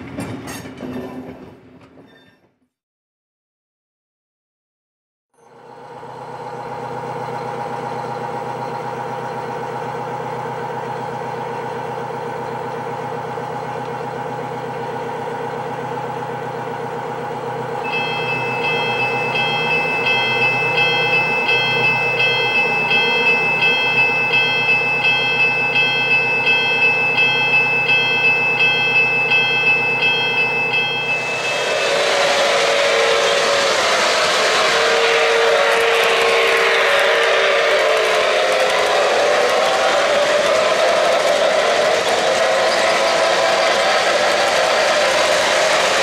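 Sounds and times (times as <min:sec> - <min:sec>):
crossing signal bell ringing: 0:17.8 - 0:35.4.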